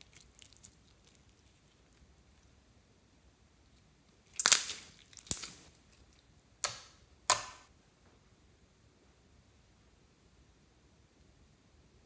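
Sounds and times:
slime popping: 0:04.3 - 0:05.7.

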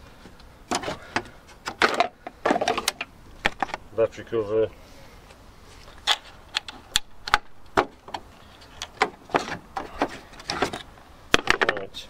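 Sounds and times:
plastic covers clicking and knocking: 0:00.7 - 0:03.8.

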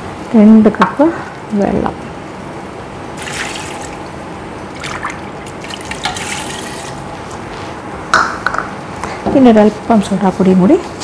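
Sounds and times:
water pouring into a pot: 0:03.2 - 0:04.1, 0:04.7 - 0:07.1.

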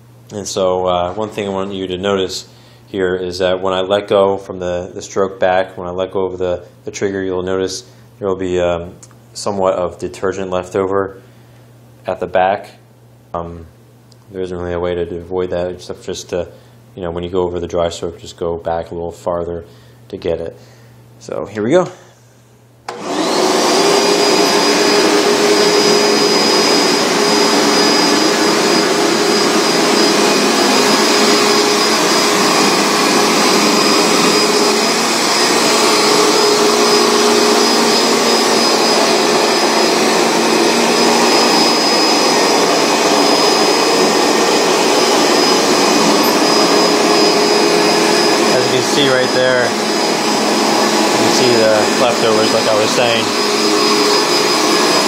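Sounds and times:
carpet cleaner running: 0:00.0 - 0:02.8, 0:22.9 - 0:55.0.

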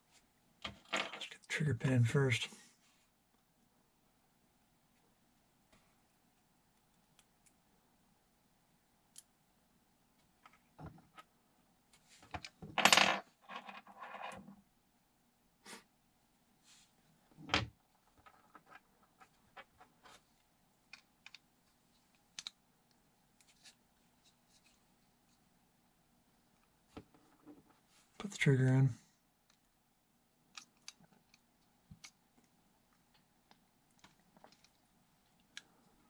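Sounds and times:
light clicks of plastic parts: 0:22.0 - 0:23.8, 0:30.5 - 0:35.8.

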